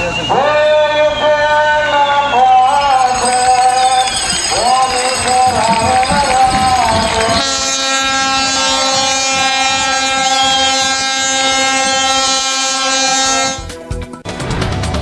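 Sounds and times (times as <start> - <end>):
high whistles: 2.1 - 7.6, 10.0 - 11.4
ship's horn blast: 6.9 - 13.8.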